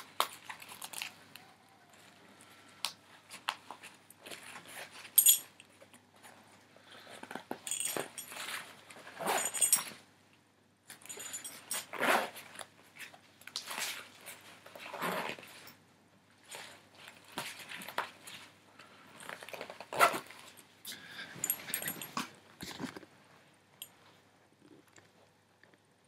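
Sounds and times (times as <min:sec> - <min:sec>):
metallic buckle clink: 0:05.2 - 0:05.6, 0:07.6 - 0:08.4, 0:09.2 - 0:09.9, 0:11.0 - 0:11.9, 0:21.4 - 0:22.3
fabric and straps rustling: 0:07.2 - 0:10.0, 0:11.0 - 0:15.8, 0:16.4 - 0:20.7, 0:21.3 - 0:23.0.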